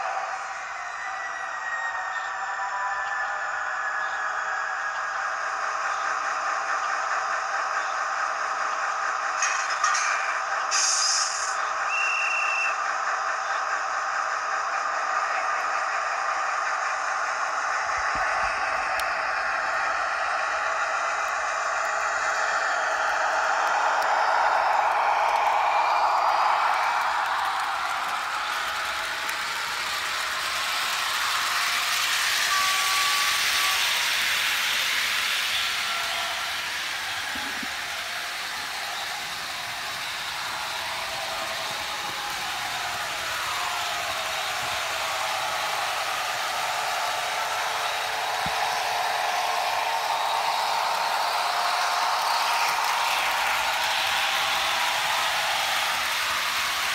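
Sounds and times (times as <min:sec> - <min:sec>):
diesel engine sound effect: 0:00.0 - 0:56.9
model train wheels rolling on track: 0:00.0 - 0:56.9
air hissing burst: 0:10.7 - 0:11.6.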